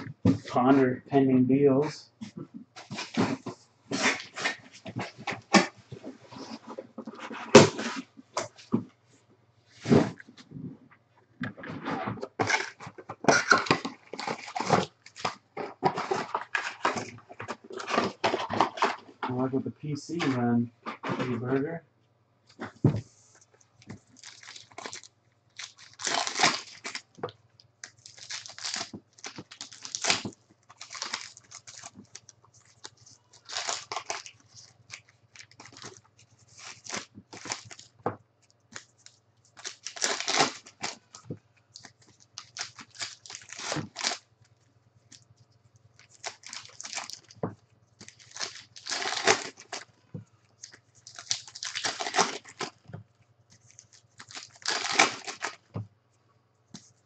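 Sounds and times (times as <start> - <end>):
card pack wrappers crinkling: 12.4 - 19.3, 23.6 - 44.3, 45.1 - 52.9, 53.5 - 55.7.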